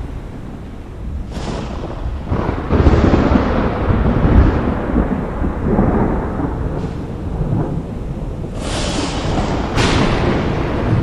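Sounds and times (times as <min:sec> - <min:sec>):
steady hiss: 0:00.0 - 0:03.4, 0:08.1 - 0:11.0
thunder rumbling: 0:00.0 - 0:11.0.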